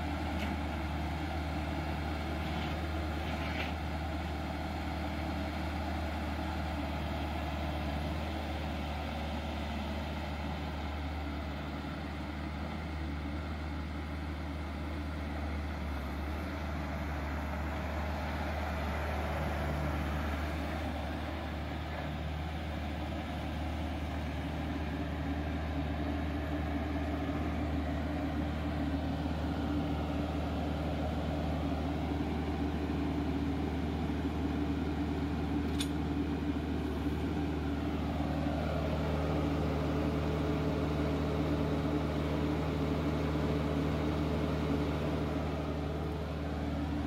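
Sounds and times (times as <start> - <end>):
diesel engine running: 0.0 - 47.0.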